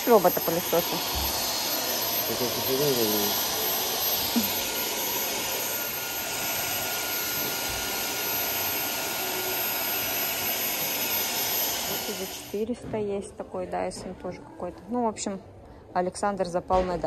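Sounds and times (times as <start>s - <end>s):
vacuum cleaner running: 0.0s - 12.7s.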